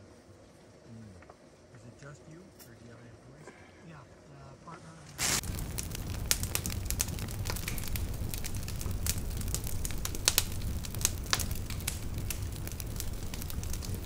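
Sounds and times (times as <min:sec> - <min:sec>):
fire low rumble: 0:04.0 - 0:14.0
campfire crackling and popping: 0:05.1 - 0:14.0.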